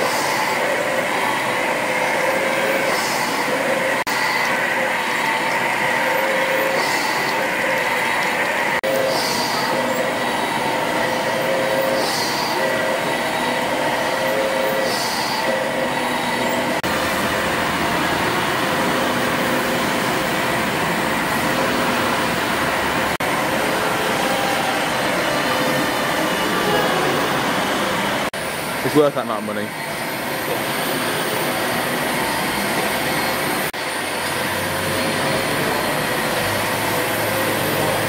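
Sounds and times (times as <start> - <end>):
held steam tones: 0.0 - 38.0
steam engines clattering: 0.0 - 38.0
short bursts of steam hiss: 9.0 - 9.8.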